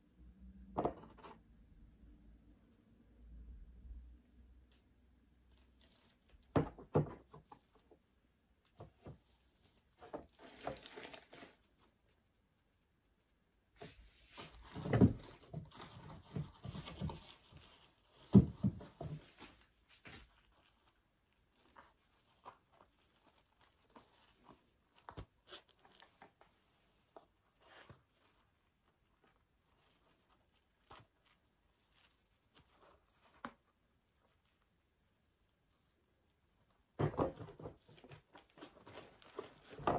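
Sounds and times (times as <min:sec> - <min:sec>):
paper rustling: 0:09.9 - 0:11.9, 0:35.5 - 0:39.9
soft rustles and light clicks: 0:13.8 - 0:39.9.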